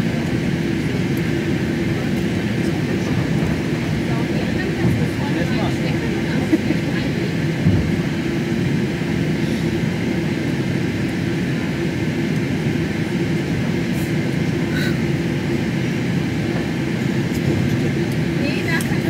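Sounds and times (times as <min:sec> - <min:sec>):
aircraft cabin rumble: 0:00.0 - 0:19.0
jet engines humming: 0:00.0 - 0:19.0.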